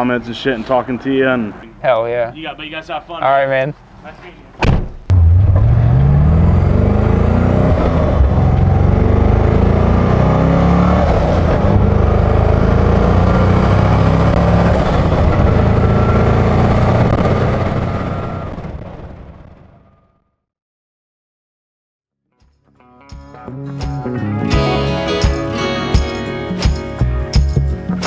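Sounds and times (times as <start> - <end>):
car engine running loudly: 5.1 - 19.4.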